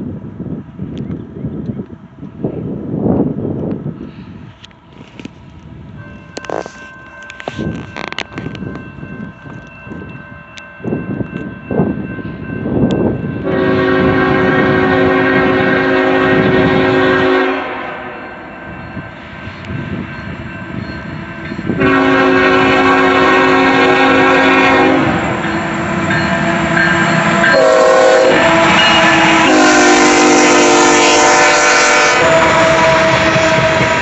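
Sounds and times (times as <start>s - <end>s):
train wheels rumbling: 0.0s - 34.0s
locomotive air horn blasts: 13.4s - 18.5s, 21.7s - 34.0s.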